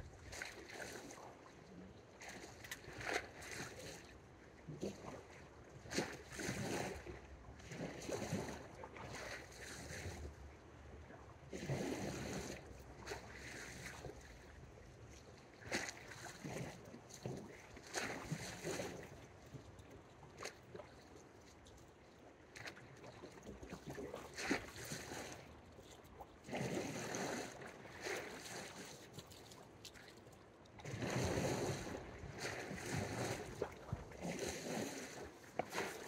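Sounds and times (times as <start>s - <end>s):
low steady rumble: 0.0s - 0.4s.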